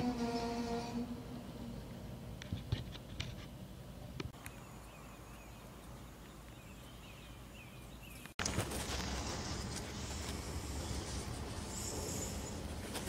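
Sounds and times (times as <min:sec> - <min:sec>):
freight train cars rolling: 0:00.0 - 0:02.4, 0:08.4 - 0:13.0.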